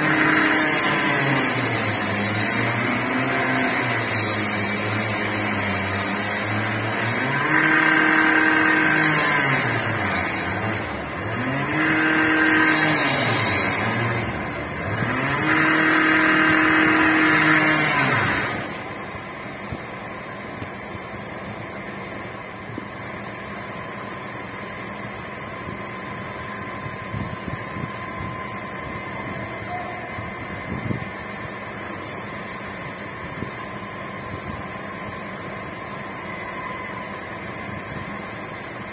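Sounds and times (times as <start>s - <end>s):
engine revving: 0.0s - 18.9s.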